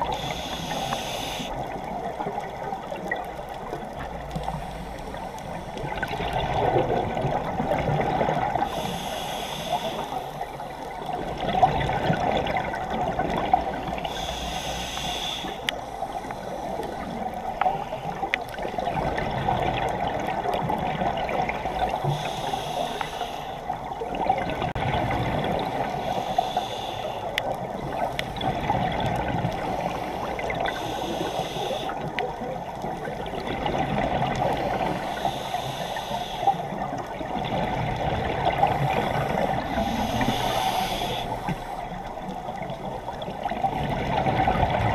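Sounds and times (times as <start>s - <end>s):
scuba regulator breathing: 0.0s - 1.8s, 8.5s - 10.9s, 13.9s - 18.4s, 21.6s - 23.8s, 25.8s - 28.6s, 29.5s - 32.1s, 34.6s - 37.0s, 38.6s - 43.1s
underwater hiss: 0.0s - 3.6s, 6.7s - 11.5s, 12.4s - 18.9s, 21.3s - 24.0s, 25.5s - 32.2s, 33.1s - 37.2s, 38.0s - 43.2s.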